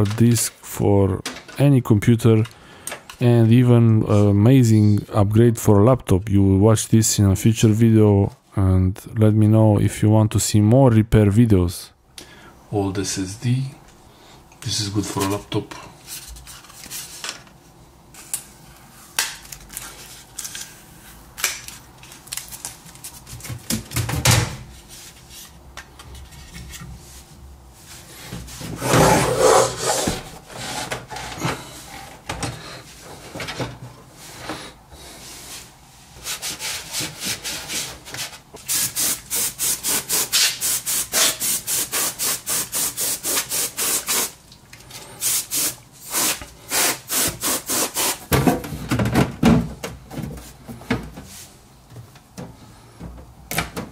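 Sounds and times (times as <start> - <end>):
quick rubbing strokes: 28.7 - 30.3.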